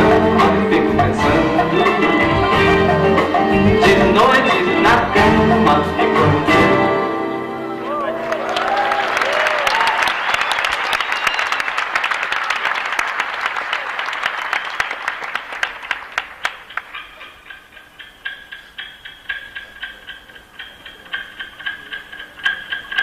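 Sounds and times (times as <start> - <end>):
audience applauding: 7.8 - 17.2.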